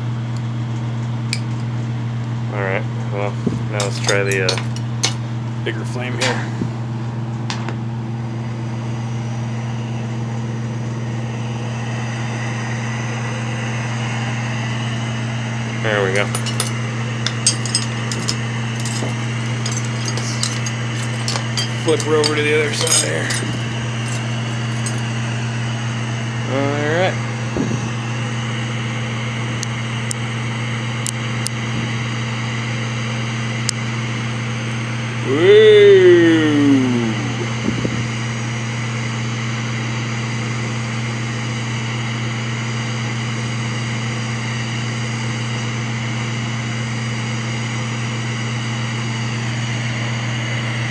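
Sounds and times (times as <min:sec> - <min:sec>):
torch flame roaring: 0:11.4 - 0:28.7.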